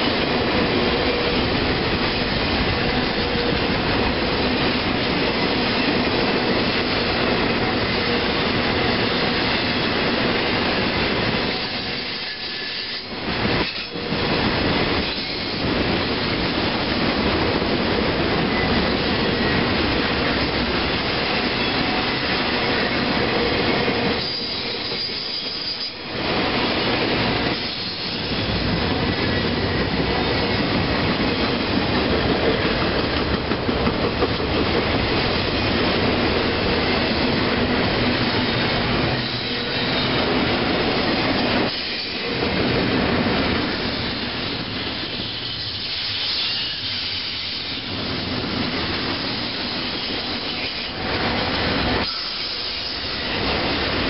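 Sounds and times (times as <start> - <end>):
train wheels rumbling on rails: 0.0 - 54.0
high wheel squeal: 11.4 - 14.1, 24.1 - 26.8, 43.8 - 48.0, 52.0 - 53.5.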